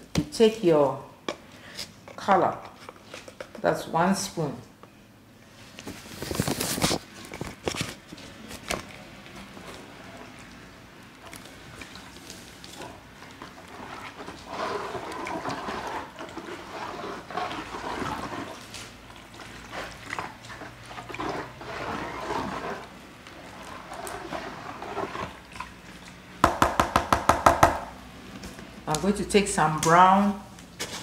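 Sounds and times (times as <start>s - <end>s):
liquid sloshing in plastic basin: 11.2s - 26.4s.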